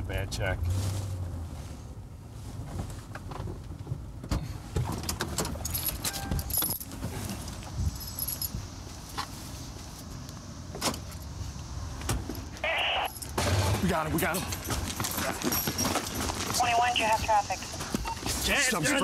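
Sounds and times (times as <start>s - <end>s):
metallic jangling and rattles: 5.0s - 8.8s, 13.1s - 16.6s.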